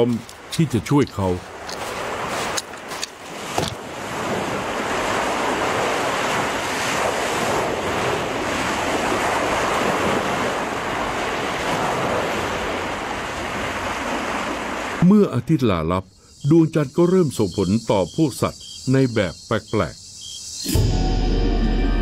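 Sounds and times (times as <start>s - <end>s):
surf breaking on beach: 0.0s - 15.2s
wind: 0.0s - 22.0s.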